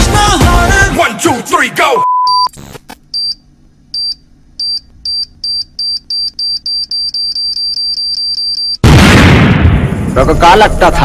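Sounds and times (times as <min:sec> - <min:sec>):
steady test-tone beep: 0:02.0 - 0:02.5, 0:04.0 - 0:08.8.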